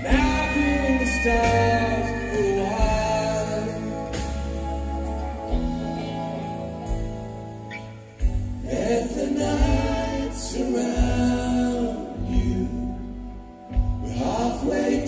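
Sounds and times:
man singing: 0:00.0 - 0:04.4, 0:08.6 - 0:13.2, 0:13.9 - 0:15.0
electric guitar: 0:00.0 - 0:15.0
live rock band playing: 0:00.0 - 0:15.0.

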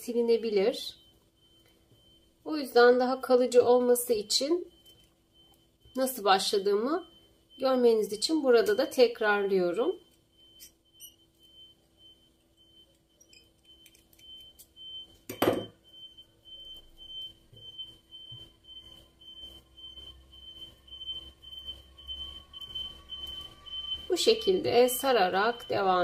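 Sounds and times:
faint high-pitched tone: 0:19.9 - 0:26.0.

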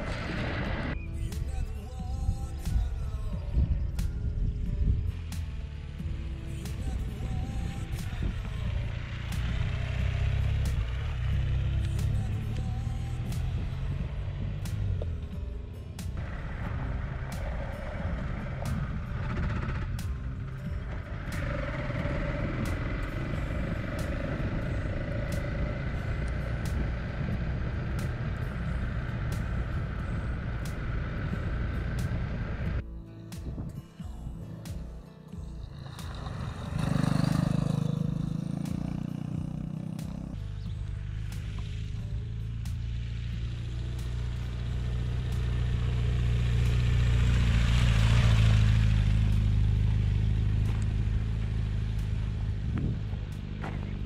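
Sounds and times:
wind noise: 0:00.0 - 0:06.4, 0:16.2 - 0:32.8, 0:52.1 - 0:54.0
motorcycle engine running: 0:00.0 - 0:54.0
tyres on dirt track: 0:00.0 - 0:54.0.

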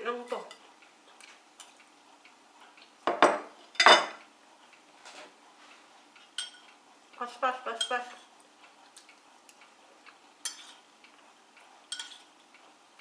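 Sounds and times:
cutlery clinking on a plate: 0:03.1 - 0:04.2, 0:06.4 - 0:06.6, 0:10.4 - 0:10.8, 0:11.9 - 0:12.3
tableware clattering: 0:03.1 - 0:04.2, 0:06.4 - 0:06.6, 0:10.4 - 0:10.8, 0:11.9 - 0:12.3.

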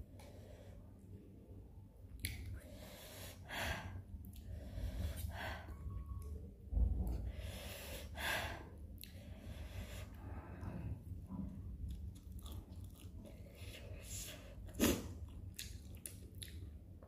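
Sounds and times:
dull low bump: 0:06.7 - 0:07.4.

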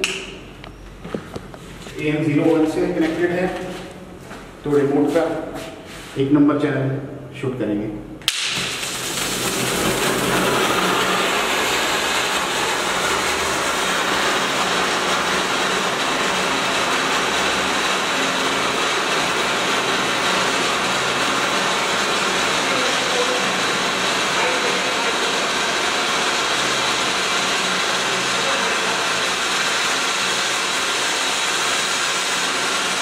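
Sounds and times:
spark fountain hissing: 0:08.3 - 0:33.0.

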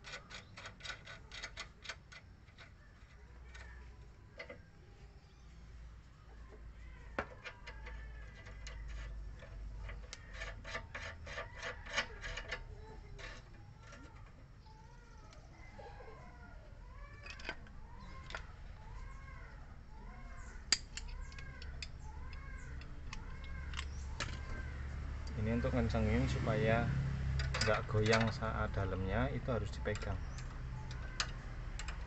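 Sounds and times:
bird chirping: 0:12.7 - 0:26.8, 0:27.7 - 0:32.0
wrench clicking: 0:29.9 - 0:32.0.

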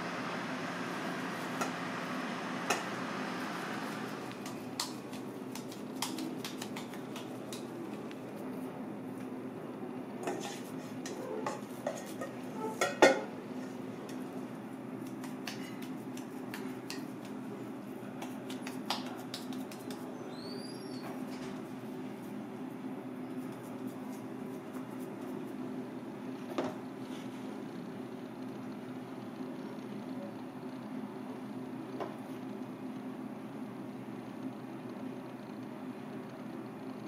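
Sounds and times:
steady low hum: 0:00.0 - 0:37.0
metal bowl clinking and scraping: 0:10.3 - 0:13.2.

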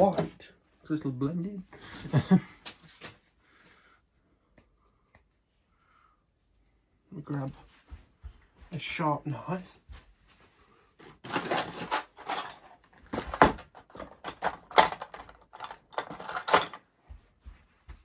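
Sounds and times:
tools clattering on workbench: 0:11.0 - 0:16.9.

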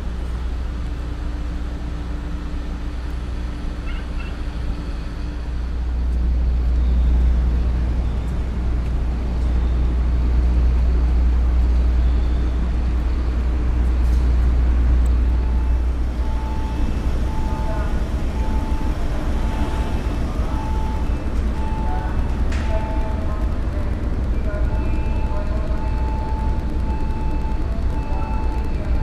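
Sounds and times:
ship engines rumbling: 0:00.0 - 0:29.0.

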